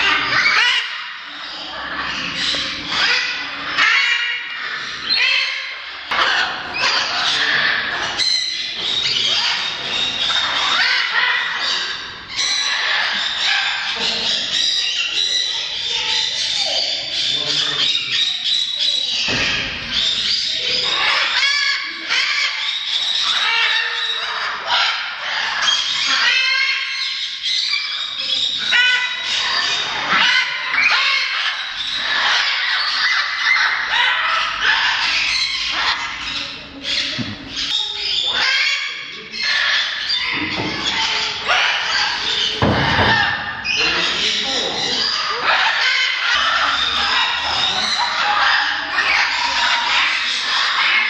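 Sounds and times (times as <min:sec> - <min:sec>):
macaws squawking: 0:00.0 - 0:51.0.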